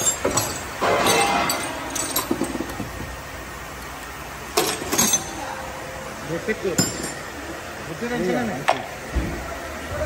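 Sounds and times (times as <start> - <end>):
metal tools clinking and clattering: 0.0 - 2.9, 4.6 - 5.4.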